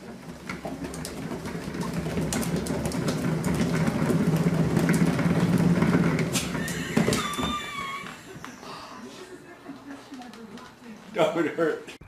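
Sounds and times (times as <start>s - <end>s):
cat exercise wheel spinning: 0.0s - 8.8s.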